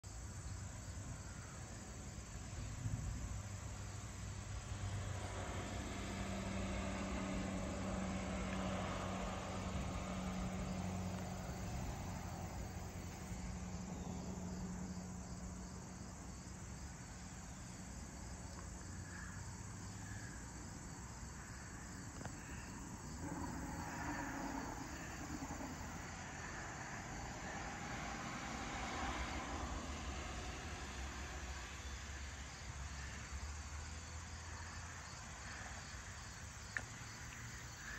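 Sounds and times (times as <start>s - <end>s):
crickets chirping: 0.0s - 37.9s
low hum: 4.1s - 15.6s, 22.2s - 31.8s.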